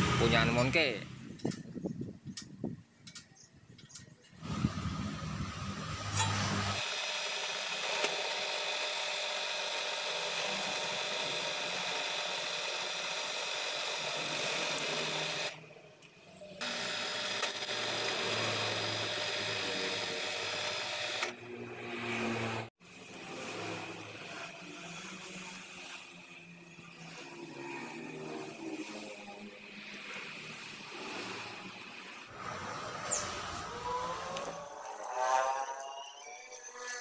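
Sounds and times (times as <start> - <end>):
drill press motor whine: 4.4 - 15.7, 16.6 - 22.1.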